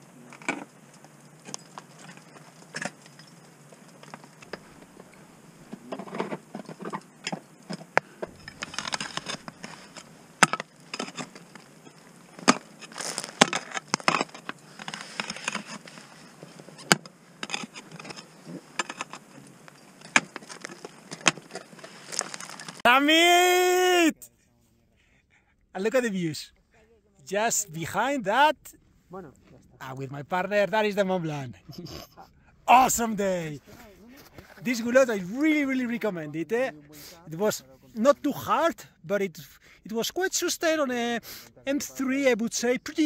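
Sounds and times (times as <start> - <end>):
ice axe striking ice and rock: 6.2 - 23.3.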